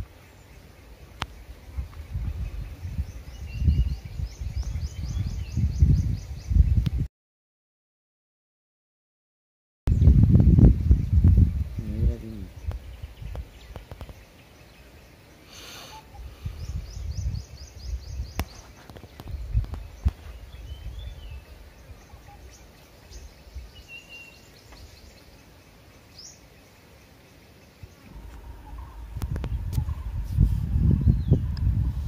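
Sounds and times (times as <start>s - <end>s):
small birds chirping: 0.0s - 7.1s, 9.9s - 32.0s
low rumbling gusts: 0.9s - 7.1s, 9.9s - 13.6s, 27.8s - 32.0s.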